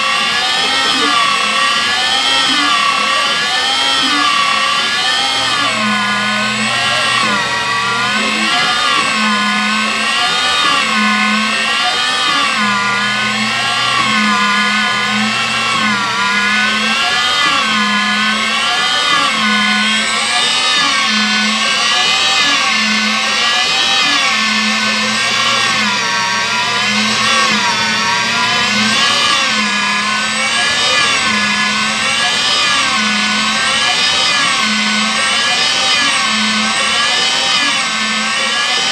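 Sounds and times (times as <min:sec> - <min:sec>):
electric motor whine: 0:00.0 - 0:38.9
pulsing low hum: 0:04.0 - 0:18.4.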